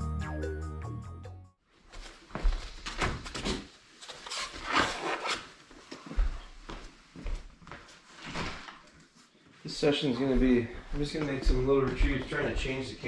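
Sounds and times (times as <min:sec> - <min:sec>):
knocks and scuffs on tile floor: 0:01.8 - 0:04.3, 0:05.7 - 0:09.0.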